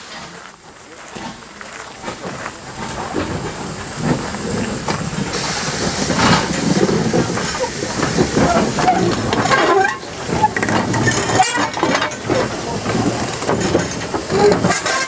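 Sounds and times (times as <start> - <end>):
steam hissing: 0.0 - 15.0
steam locomotive rumbling on rails: 0.0 - 15.0.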